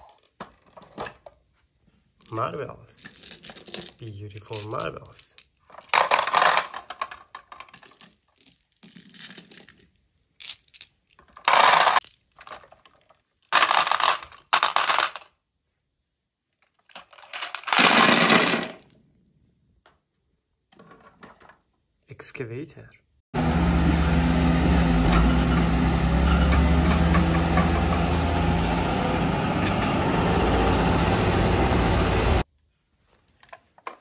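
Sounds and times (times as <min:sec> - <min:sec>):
glass marbles clattering on plastic: 0:02.2 - 0:15.3, 0:17.0 - 0:18.9.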